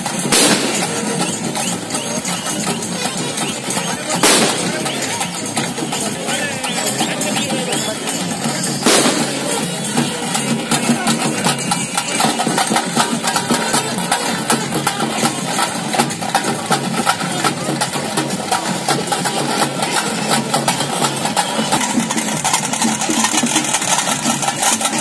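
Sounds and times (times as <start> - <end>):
fast procession drumming: 0.0 - 25.0
loud crack: 0.3 - 1.4, 4.2 - 4.9, 8.8 - 9.6.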